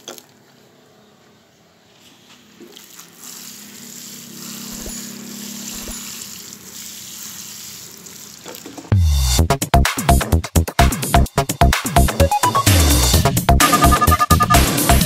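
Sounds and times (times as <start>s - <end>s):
water splashing onto soil: 5.6s - 8.9s.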